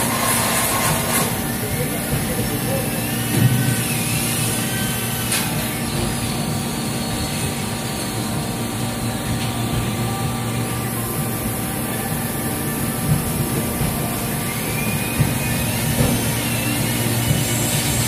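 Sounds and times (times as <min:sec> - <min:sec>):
machinery droning: 0:00.0 - 0:18.0.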